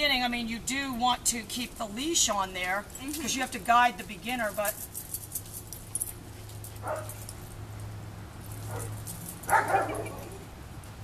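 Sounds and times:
puppy yipping: 8.7 - 10.4.

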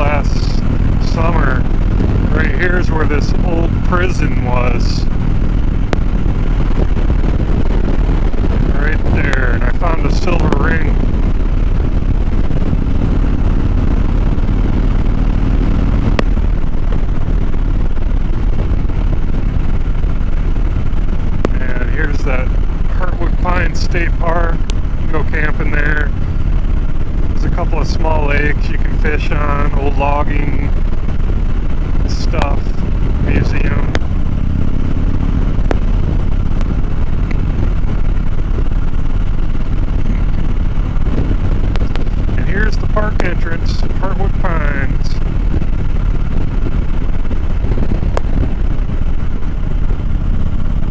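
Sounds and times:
motorcycle engine running: 0.0 - 50.9
wind on microphone: 0.0 - 50.9.

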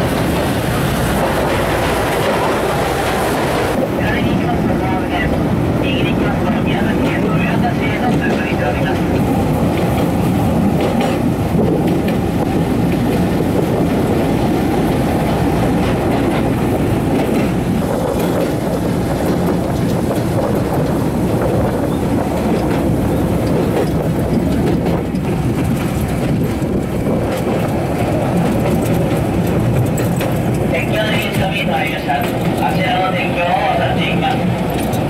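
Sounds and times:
wheels on rails: 6.2 - 35.0.

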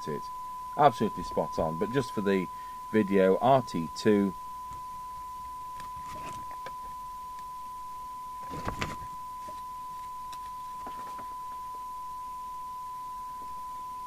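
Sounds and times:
steady test tone through radio: 0.0 - 14.0
handling clicks and rustles: 4.7 - 7.5, 8.4 - 11.4.

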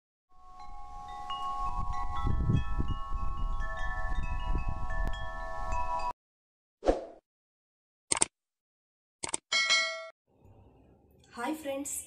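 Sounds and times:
wind chimes ringing: 0.4 - 6.2
wind noise rumble: 1.4 - 6.0.

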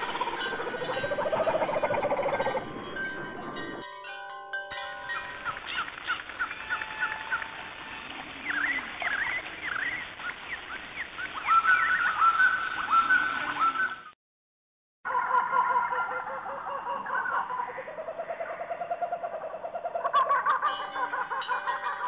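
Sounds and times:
birds chirping: 0.0 - 3.8, 5.1 - 14.2
held chime-like tones: 0.0 - 5.9, 20.7 - 22.0.

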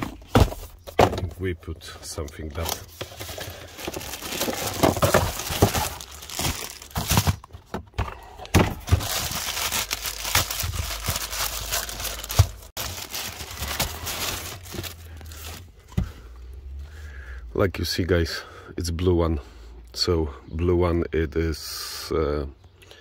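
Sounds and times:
plastic wrapping crinkling: 2.2 - 7.5, 8.8 - 15.7.

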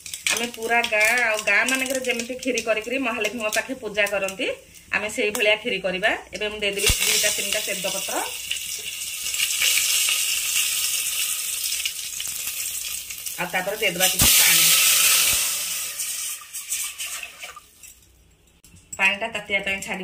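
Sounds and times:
spices sizzling in hot oil: 0.0 - 5.7, 6.4 - 18.2
water poured into hot pot hissing: 14.0 - 17.7.

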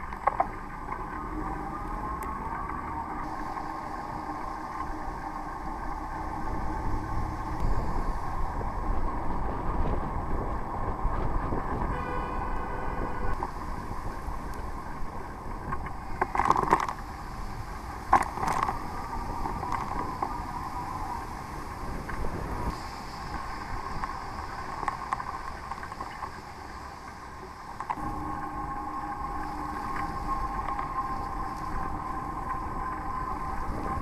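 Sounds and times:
wind buffeting microphone: 0.0 - 26.6, 27.2 - 34.0
noisy bursts: 0.0 - 34.0
traffic on wet road: 0.0 - 34.0
horn toot: 11.9 - 13.4.

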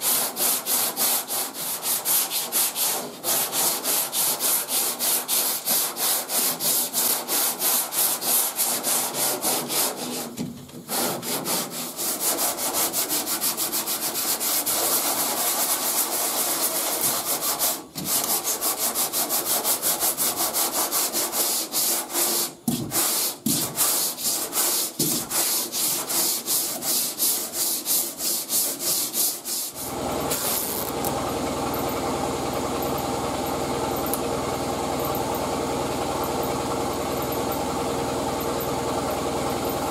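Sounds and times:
sandpaper rasping on filler: 0.0 - 31.0
steady mechanical hum: 0.0 - 39.9.

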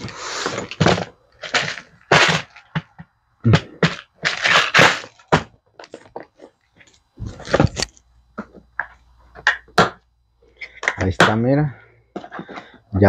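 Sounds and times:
plastic cases clacking: 0.0 - 10.0.

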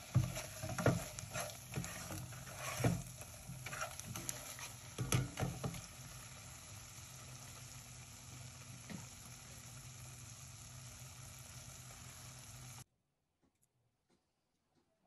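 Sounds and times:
spatula scraping and knocking: 0.0 - 5.9
meat sizzling in oil: 0.0 - 12.8.

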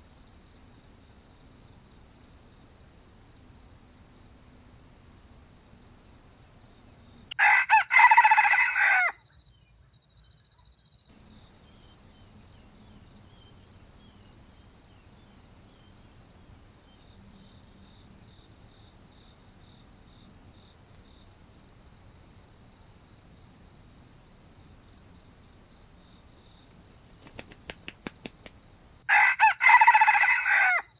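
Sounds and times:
insects trilling: 0.1 - 30.8
rooster crowing: 7.3 - 9.2, 29.1 - 30.9.

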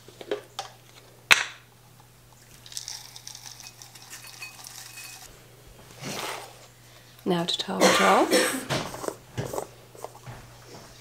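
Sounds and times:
dry food pouring into bowl: 2.6 - 5.3.

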